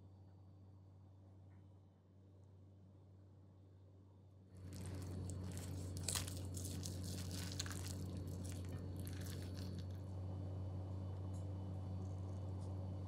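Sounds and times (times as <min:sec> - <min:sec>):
low electrical hum: 0:00.0 - 0:13.0
crunching and crinkling handling: 0:04.5 - 0:10.0.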